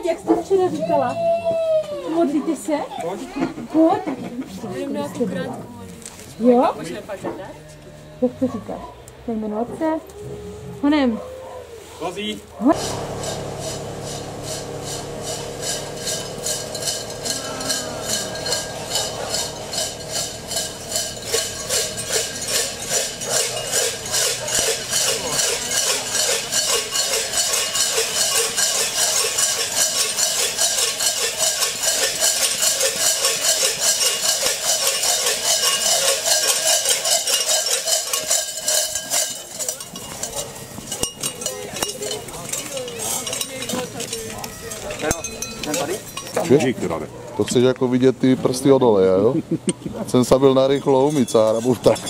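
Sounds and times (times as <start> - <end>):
large bells clanging: 12.7 - 47.0.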